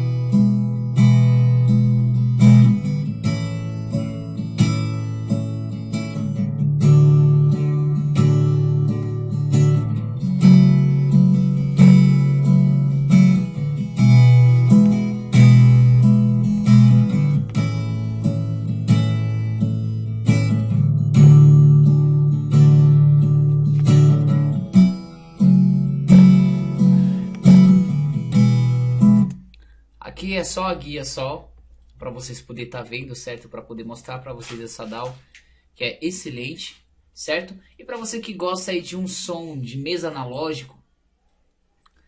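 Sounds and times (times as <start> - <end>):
acoustic guitar strumming chords: 0.0 - 31.1.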